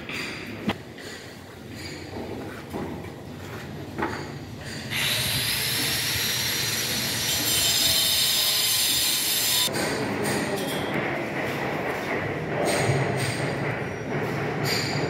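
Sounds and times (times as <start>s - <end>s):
power tool high-pitched whine: 4.9s - 9.7s.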